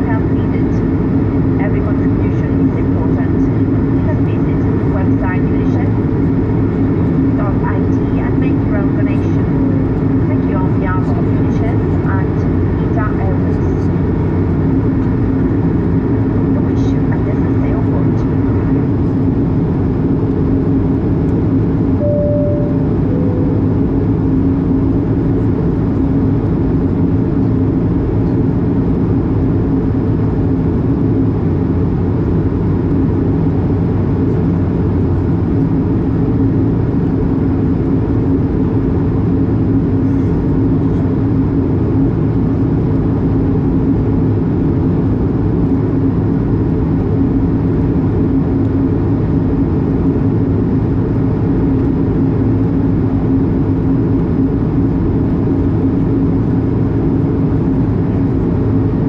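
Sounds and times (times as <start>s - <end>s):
aircraft cabin rush and hum: 0.0s - 59.0s
two-note falling chime: 22.0s - 23.9s.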